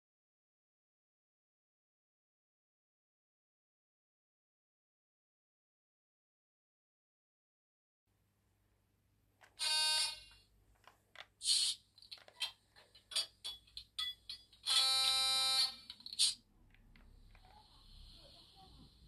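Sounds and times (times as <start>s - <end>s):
harsh electronic tone: 9.6s - 10.4s
brief hiss: 11.4s - 11.8s.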